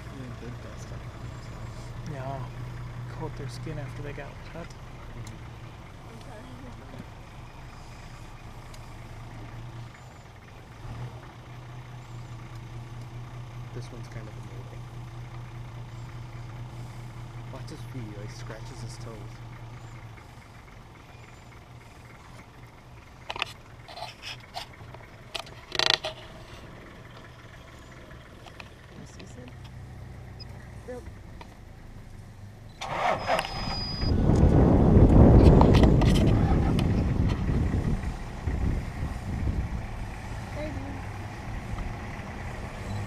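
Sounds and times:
vehicle engine idling: 0:00.0 - 0:43.0
sharp scrapes and clicks: 0:23.2 - 0:26.7, 0:35.4 - 0:36.4.

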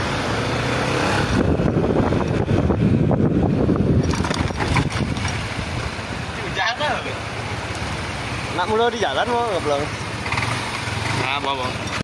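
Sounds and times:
wind buffeting microphone: 0:01.2 - 0:06.2.

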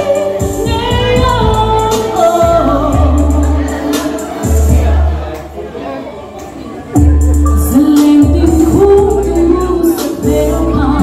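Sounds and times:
woman singing into microphone: 0:00.0 - 0:05.3, 0:07.4 - 0:11.0
instrumental accompaniment: 0:06.9 - 0:11.0.

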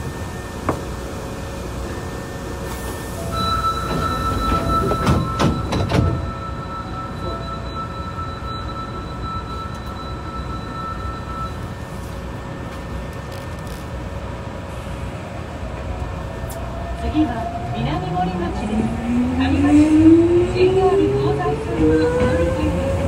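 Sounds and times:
stopped train car humming: 0:00.0 - 0:23.0
train door thuds: 0:02.8 - 0:06.4.

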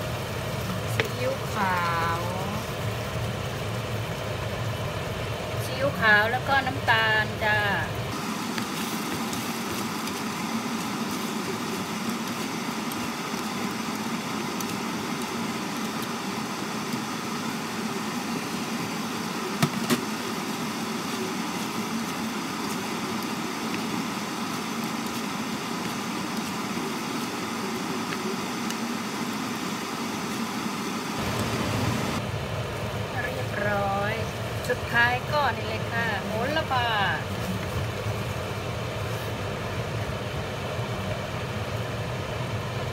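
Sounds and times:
seafood sizzling in a pan: 0:00.0 - 0:33.0.

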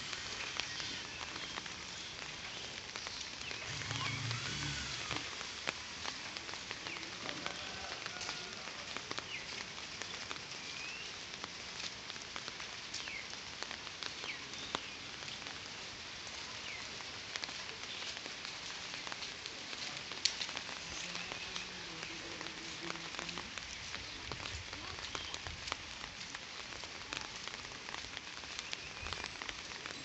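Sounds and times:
light rain falling: 0:00.0 - 0:30.0.

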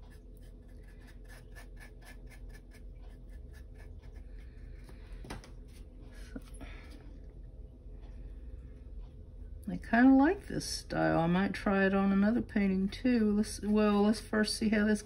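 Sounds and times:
paintbrush scratching on wood: 0:00.0 - 0:04.8, 0:12.0 - 0:15.0.

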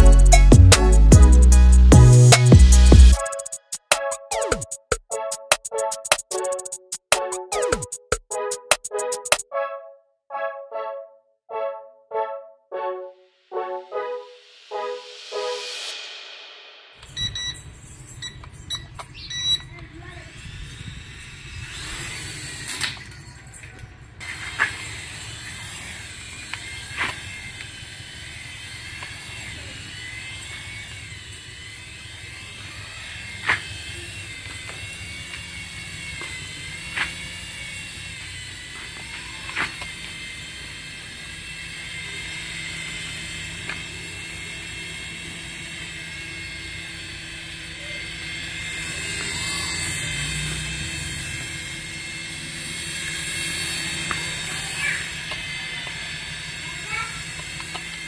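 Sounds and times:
toy helicopter rotors whirring: 0:17.0 - 0:58.0.

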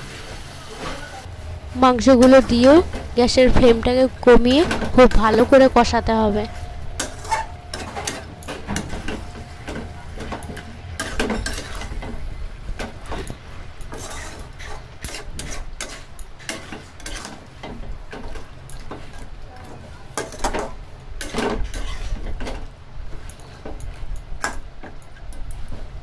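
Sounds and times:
metal spatula scraping a pan: 0:01.3 - 0:19.3, 0:20.2 - 0:22.5.

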